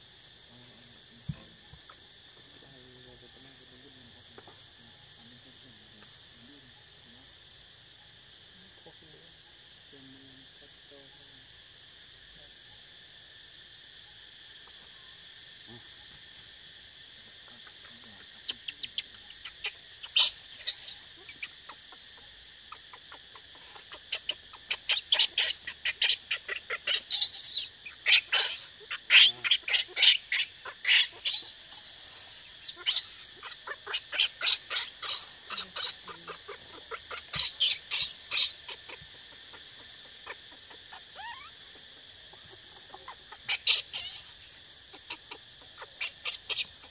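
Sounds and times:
insect drone: 0.0 - 46.9
bird chirping rapidly: 18.6 - 21.6, 23.9 - 38.9, 43.3 - 46.8.

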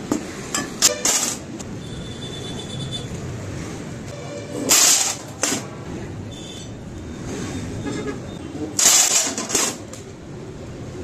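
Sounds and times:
metal sheets scraping and rattling: 4.4 - 5.7, 8.8 - 9.8.

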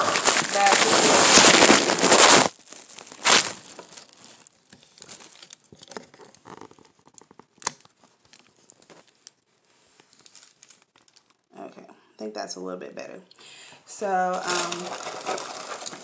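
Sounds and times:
phone rubbing on microphone: 0.0 - 2.5
plastic packet crinkling: 0.0 - 11.5, 14.1 - 16.0.

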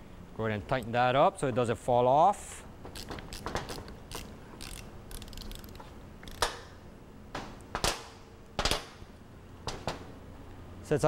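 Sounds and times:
metal clicks of wrenches: 2.9 - 6.7.

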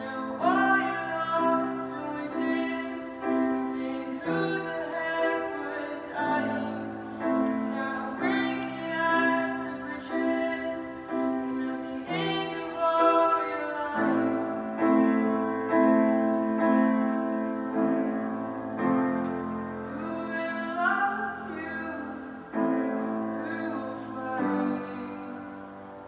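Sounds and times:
girl singing: 0.0 - 14.8
grand piano chords: 0.0 - 26.0.

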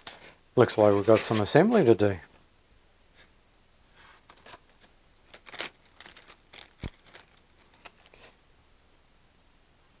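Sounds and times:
plastic bag crinkling: 4.2 - 8.3.

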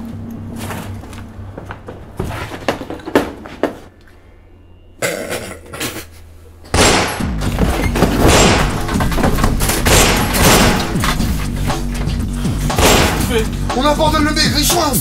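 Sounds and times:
loud bang: 6.7 - 7.5, 8.1 - 11.1, 12.8 - 13.4.

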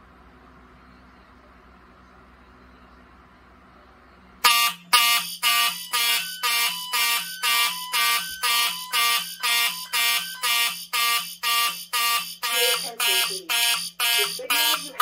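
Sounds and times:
fire alarm horns pulsing: 4.4 - 15.0.

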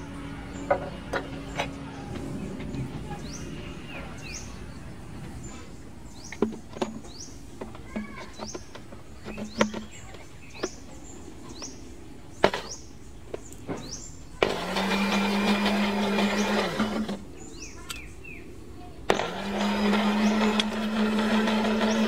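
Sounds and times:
small birds chirping: 0.0 - 22.0
electric blender motor humming: 14.4 - 17.2, 19.1 - 22.0.

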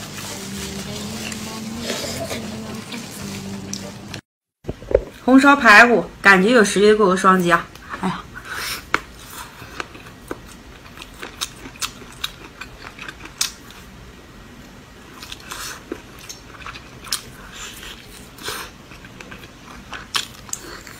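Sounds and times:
biting and chewing: 9.2 - 13.9, 15.2 - 20.9.

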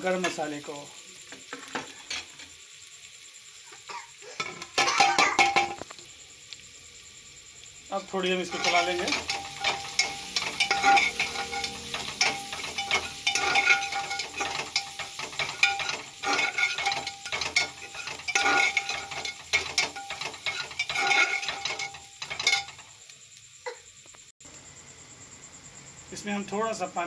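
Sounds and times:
spatula scraping metal pot: 8.3 - 22.8.

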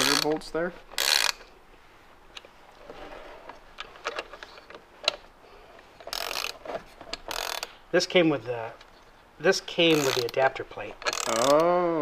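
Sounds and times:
wrench ratcheting: 0.0 - 1.5, 6.0 - 7.8, 9.8 - 11.8.

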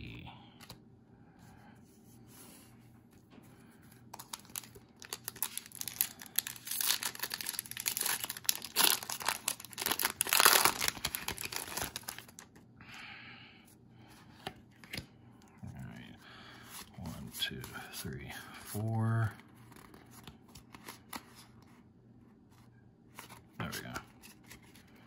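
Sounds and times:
cards rustling: 4.0 - 12.6, 16.6 - 21.7
foil wrapper crinkling and tearing: 4.2 - 12.6.

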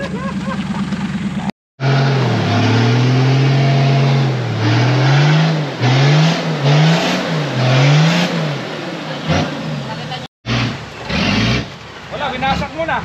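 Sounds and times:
engine revving: 0.7 - 11.8.

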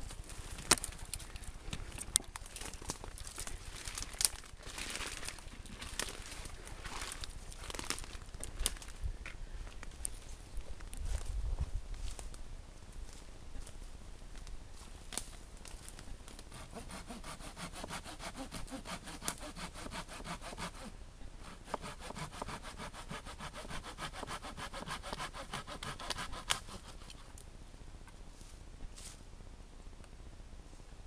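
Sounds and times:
hand saw cutting wood: 16.5 - 27.3.

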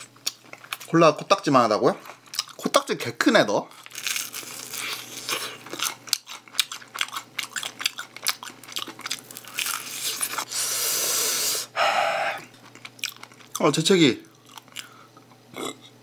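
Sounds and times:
person chewing crispy chicken: 0.0 - 1.0, 2.0 - 2.8, 3.7 - 10.8, 12.4 - 15.1
loud breathy rush of air: 10.5 - 12.4.

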